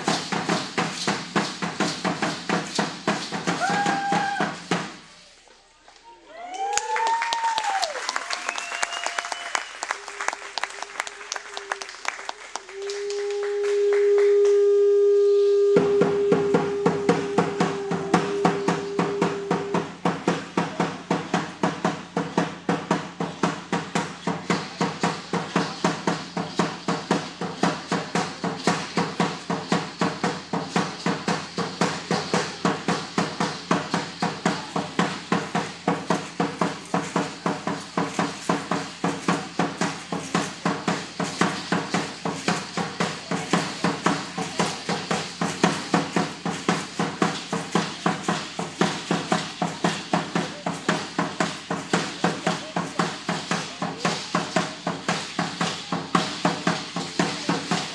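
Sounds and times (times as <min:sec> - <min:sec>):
large drum steady beat: 0:00.0 - 0:05.2, 0:12.6 - 0:57.9
conch shell trumpet note: 0:12.7 - 0:20.0.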